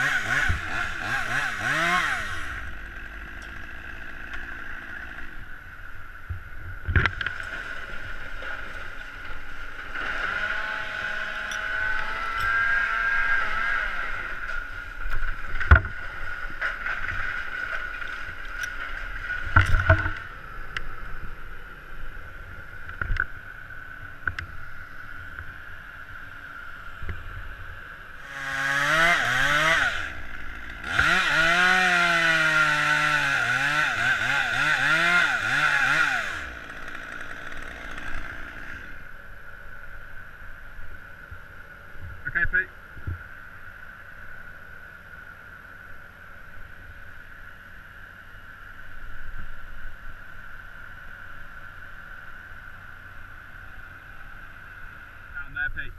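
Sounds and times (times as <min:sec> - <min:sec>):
chainsaw cutting wood: 0:00.0 - 0:05.6, 0:07.0 - 0:18.8, 0:28.2 - 0:39.1
steady machine drone: 0:00.0 - 0:55.9.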